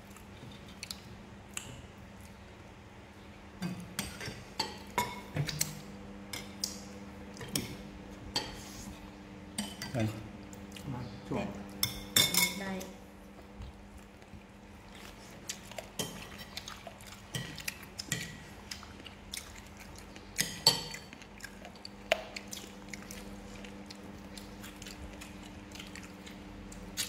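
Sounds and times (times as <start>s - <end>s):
faint steady hum: 0.0s - 27.0s
spoons clinking on ceramic plates: 11.8s - 12.6s.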